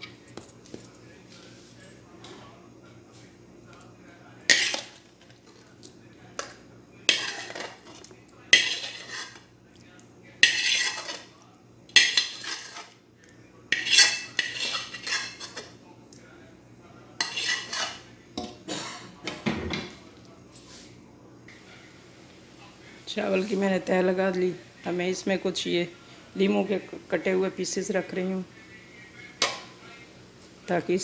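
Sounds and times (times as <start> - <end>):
metal spoon scraping a pan: 4.5 - 5.6, 6.4 - 9.5, 10.4 - 11.3, 11.9 - 13.0, 13.7 - 15.8, 17.2 - 19.1.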